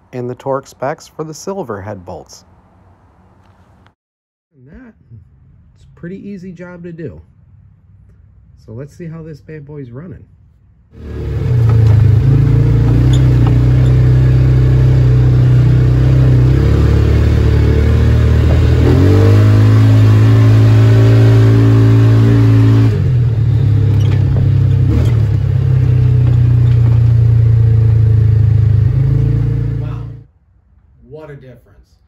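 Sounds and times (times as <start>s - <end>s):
utility vehicle engine running: 11.0s - 30.2s.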